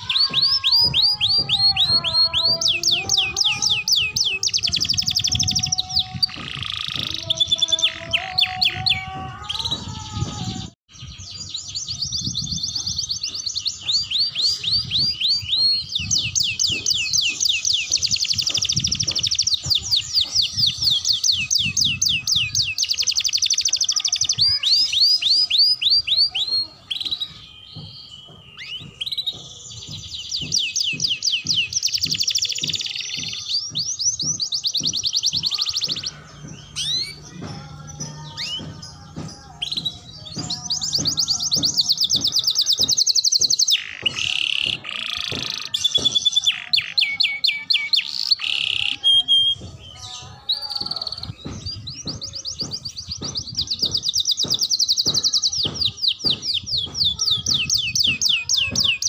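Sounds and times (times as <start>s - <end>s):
canary singing trills: 0.0s - 59.0s.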